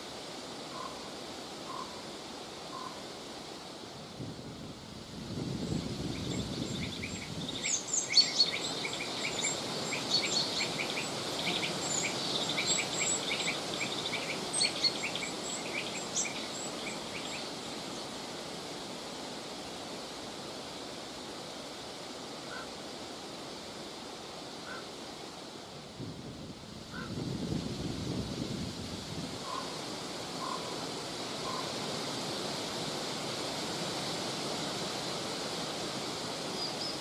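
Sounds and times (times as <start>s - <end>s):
wind blowing: 4.0s - 19.0s, 25.7s - 37.0s
songbirds chirping: 6.2s - 18.2s.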